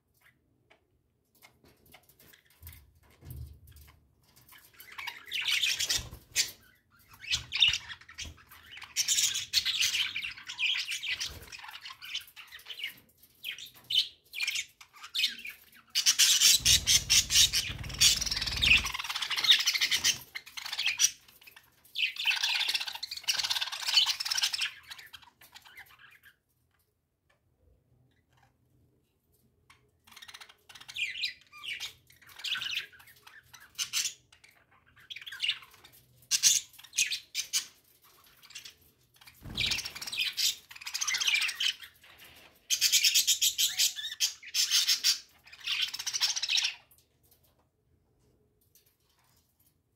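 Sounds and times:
budgerigars chattering: 16.3 - 20.2.

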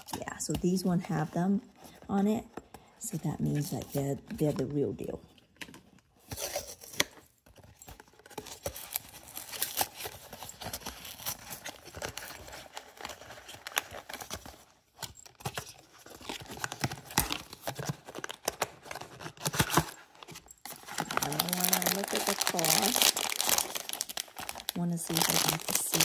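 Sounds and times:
cardboard and wrapping tearing: 6.2 - 26.0.

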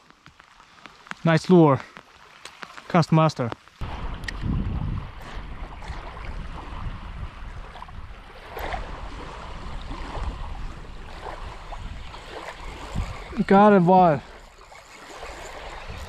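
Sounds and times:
waves lapping on gravel shore: 0.0 - 16.0
wind rumbling on microphone: 3.8 - 16.0.

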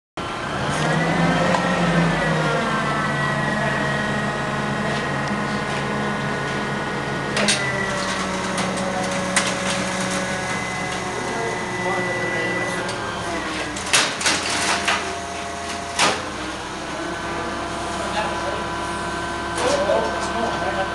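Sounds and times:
forklift hydraulic lift whining: 0.2 - 20.9.

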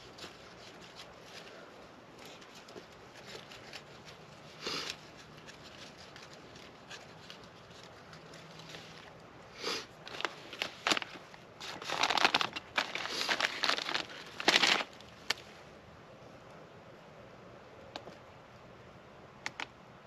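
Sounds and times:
knife scraping wood shavings: 0.0 - 9.1.

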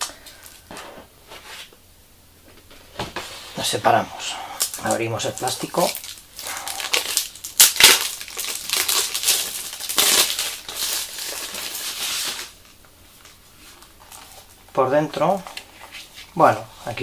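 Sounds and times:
plastic shrink-wrap crinkling: 4.6 - 16.4.

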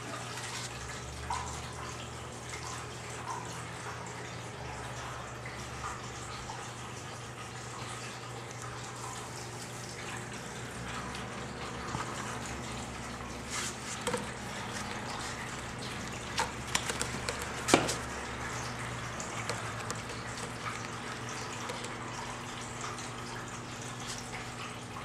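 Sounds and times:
kitten scratching at scratching post: 13.5 - 18.1, 19.4 - 22.0.

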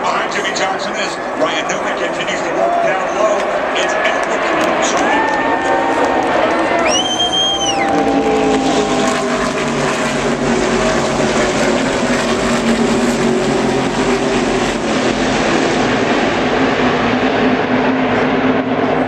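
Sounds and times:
race cars passing at speed: 0.0 - 19.0
whistle rising and falling: 6.8 - 8.3.

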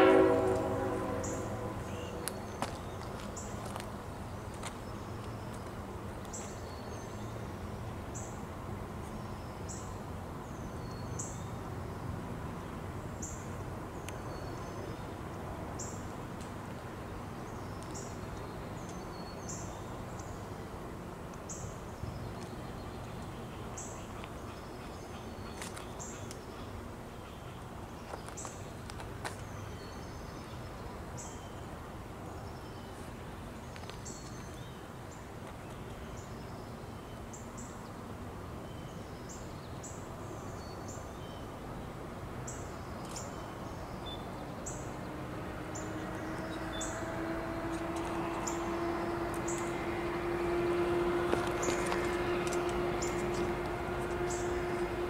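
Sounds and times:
low steady tone: 0.0 - 2.6
outdoor background noise: 0.0 - 55.0
songbirds chirping: 0.0 - 55.0.

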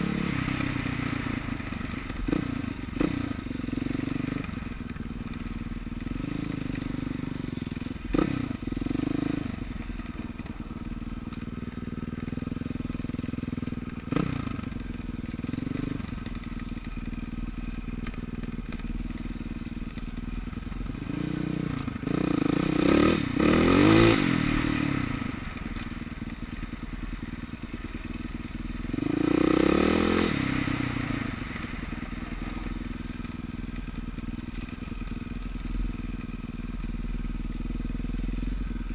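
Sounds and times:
dirt bike engine revving: 6.1 - 9.8, 13.5 - 14.7, 20.9 - 25.5, 28.8 - 32.7.

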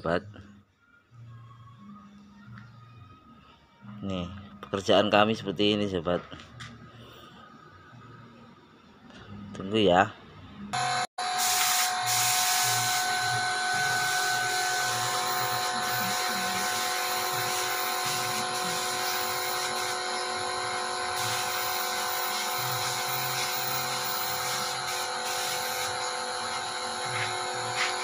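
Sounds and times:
air compressor running: 10.8 - 28.0.

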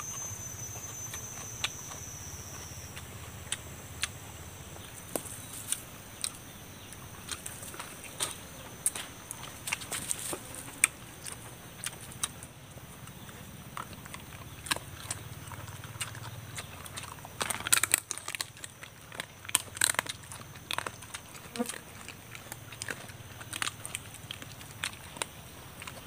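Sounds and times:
steady low hum: 0.0 - 26.0
chicken torn and chewed: 4.8 - 26.0.

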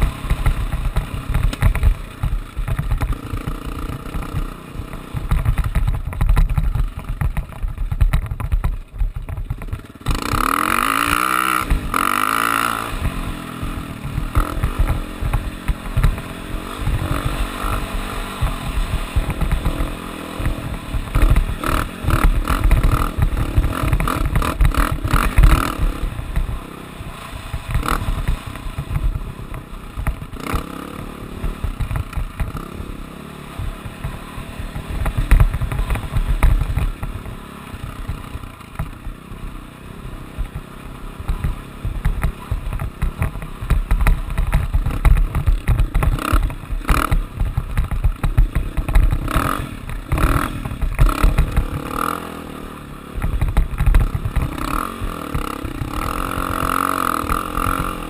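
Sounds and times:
off-road vehicle engine revving: 10.0 - 29.5, 48.2 - 58.0.

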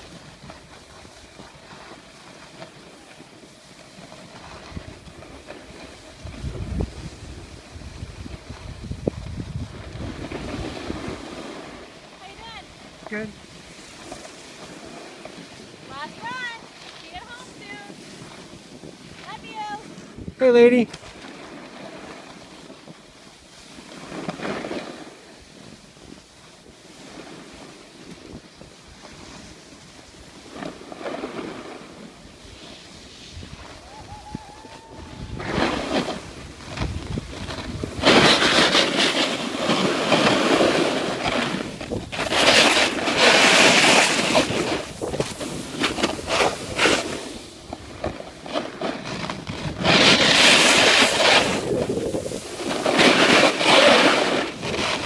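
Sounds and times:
snowboard scraping over snow: 0.0 - 55.0
wind buffeting microphone: 4.4 - 11.8, 33.2 - 48.4, 49.4 - 55.0.

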